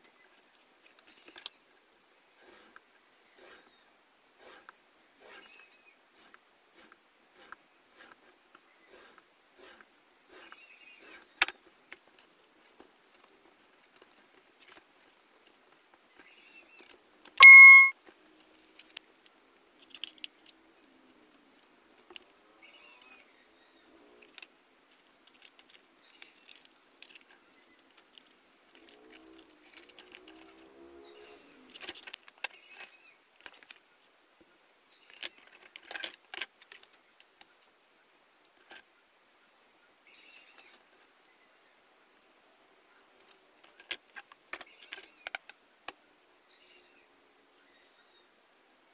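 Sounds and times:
electronic beep: 17.4s - 17.9s.

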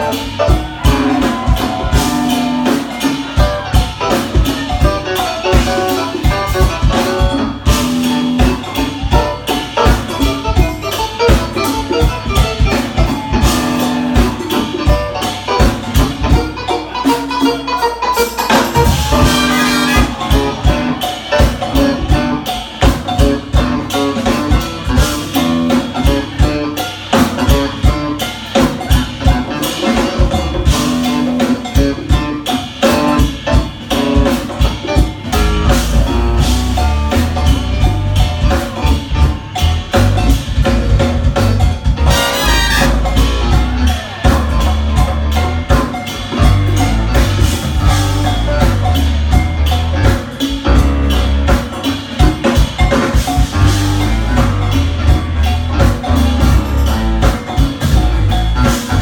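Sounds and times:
drum kit beat: 0.0s - 59.0s
jazz fusion band playing: 0.0s - 59.0s
heavy bass line: 18.5s - 26.6s, 35.2s - 59.0s.

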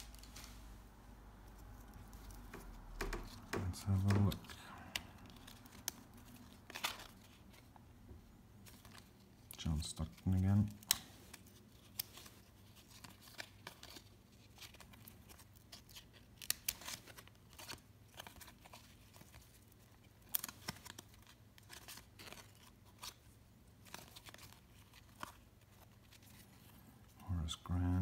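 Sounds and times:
trading cards flipped by hand: 1.5s - 7.8s.

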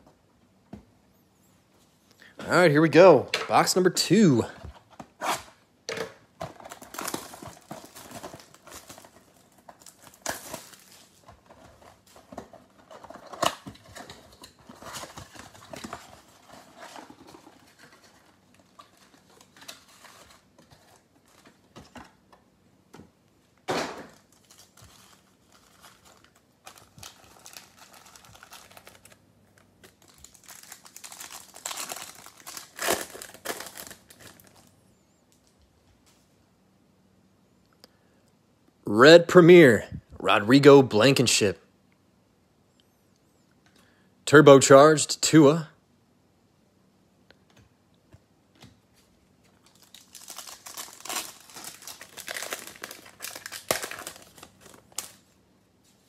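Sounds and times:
cardboard and foil packs rustling: 6.4s - 22.2s, 24.0s - 34.7s, 48.9s - 55.3s
plastic shrink wrap crinkling: 6.4s - 22.2s, 24.1s - 34.7s, 48.9s - 56.0s.

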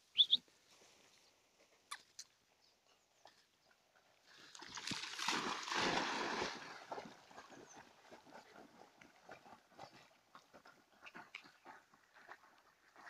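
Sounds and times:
dogs splashing through water: 3.9s - 13.0s.

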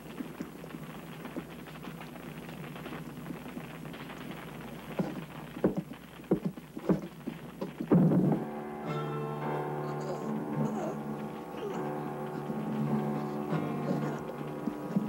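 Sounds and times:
flames crackling: 0.0s - 15.0s
boot steps on wooden floor: 5.0s - 8.4s.

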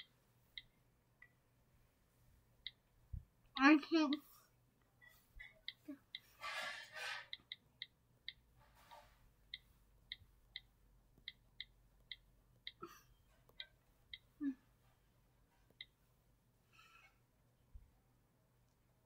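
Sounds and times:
on-screen keyboard clicks: 0.0s - 1.4s.

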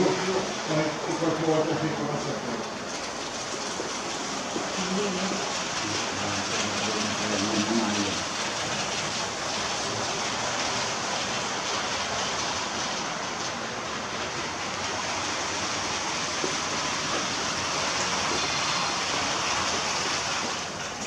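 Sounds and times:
rushing room noise: 0.0s - 21.0s.

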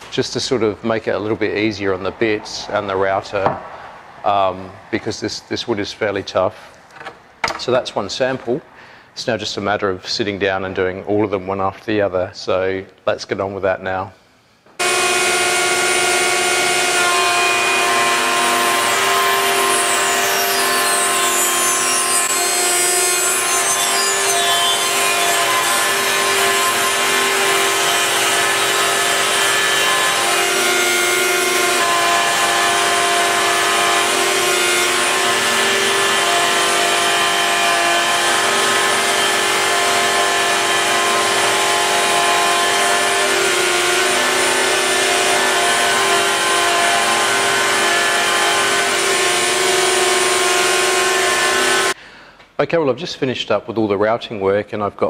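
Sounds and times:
router whining while cutting wood: 14.8s - 52.0s.

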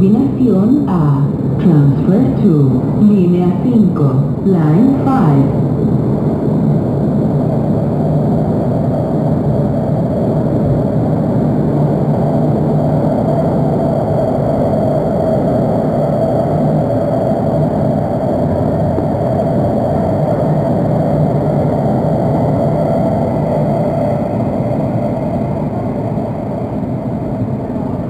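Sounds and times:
faint steady whine: 0.0s - 28.0s
metro train rumbling: 0.0s - 28.0s.

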